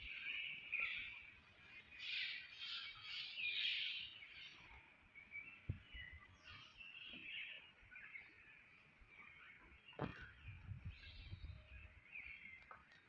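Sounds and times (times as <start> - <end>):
birds chattering and chirping: 0.0 - 13.0
short knock: 10.0 - 10.3.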